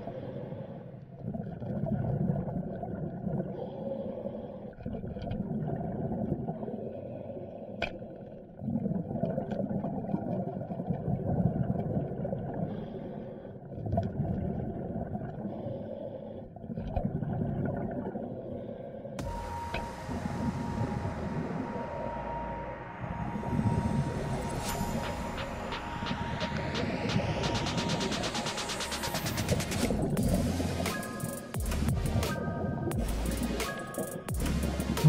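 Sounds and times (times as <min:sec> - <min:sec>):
muffled underwater rumble: 0:19.2 - 0:30.9.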